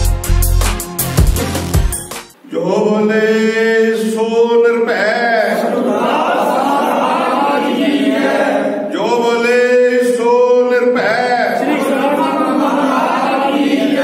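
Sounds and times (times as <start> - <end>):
men chanting in unison: 2.5 - 14.0.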